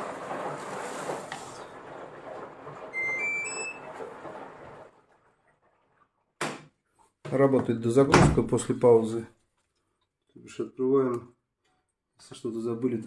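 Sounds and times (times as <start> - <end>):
washing machine water rushing: 0.0 - 6.3.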